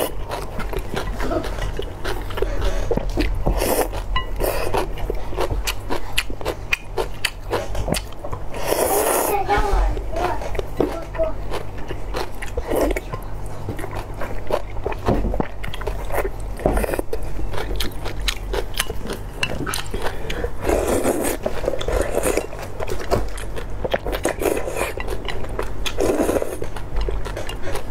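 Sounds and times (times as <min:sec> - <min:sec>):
wet chewing: 0:00.0 - 0:09.4, 0:10.0 - 0:27.9
slurping noodles and broth: 0:07.6 - 0:09.4, 0:19.9 - 0:22.5, 0:25.9 - 0:26.7.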